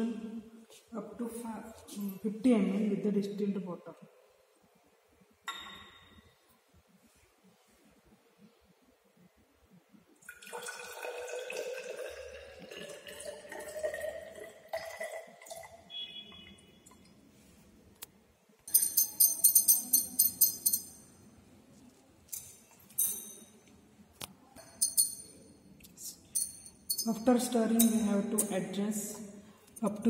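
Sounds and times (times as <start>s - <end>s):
water pouring into glass cylinder: 10.2s - 17.1s
glass rod clinking against glass: 18.7s - 21.2s, 22.3s - 23.6s, 24.6s - 25.5s, 26.2s - 28.6s.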